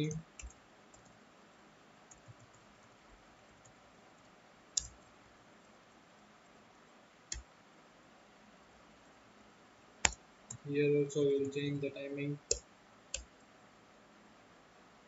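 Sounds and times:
computer mouse clicks: 0.0 - 1.2, 2.1 - 3.0, 3.6 - 5.1, 12.5 - 13.4
low steady room hiss: 0.0 - 15.0.

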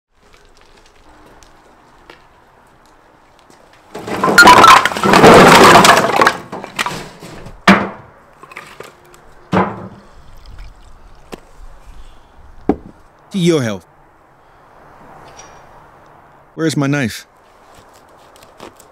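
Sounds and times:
logs clattering: 0.2 - 10.0
sharp knocks: 7.6 - 8.1, 9.5 - 10.0, 12.7 - 13.0.

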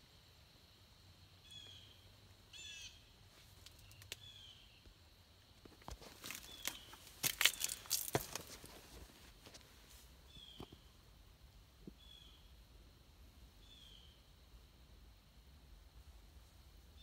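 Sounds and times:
bird harsh calls: 1.5 - 3.1.

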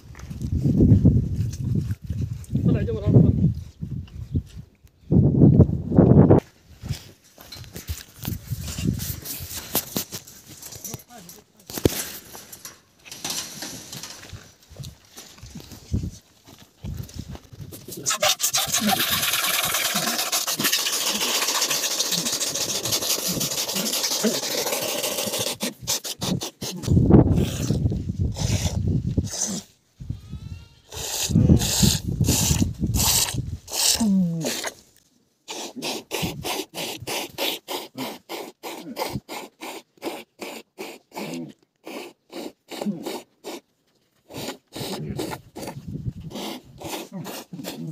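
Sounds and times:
milk squirting into bowl: 18.2 - 25.4.

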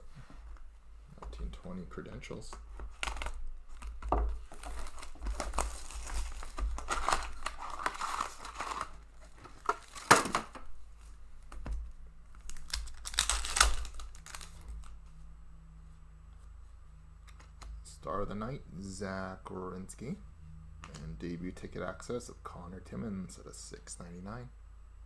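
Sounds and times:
wrap and cardboard crinkling: 2.9 - 11.1, 12.3 - 15.0
foil pack ripping open: 4.5 - 9.0, 9.6 - 10.5, 12.4 - 14.9.

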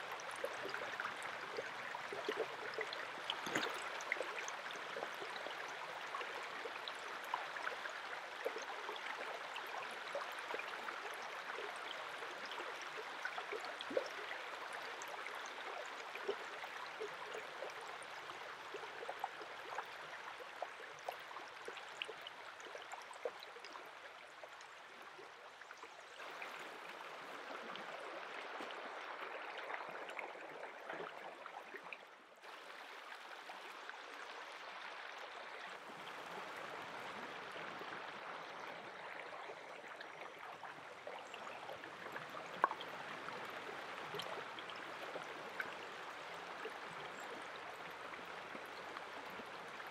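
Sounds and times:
stream running over pebbles: 0.0 - 49.9.

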